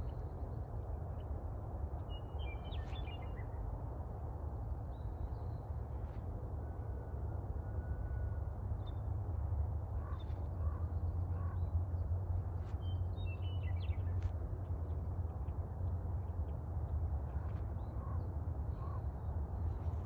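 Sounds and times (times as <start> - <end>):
wind rumble on microphone: 0.0 - 20.0.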